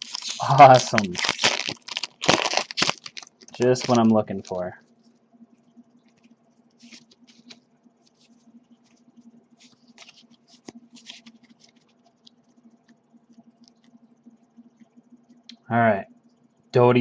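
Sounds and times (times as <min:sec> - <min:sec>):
trading cards rustling and scraping: 0:00.0 - 0:04.7, 0:06.8 - 0:12.4
low steady hum: 0:00.0 - 0:17.0.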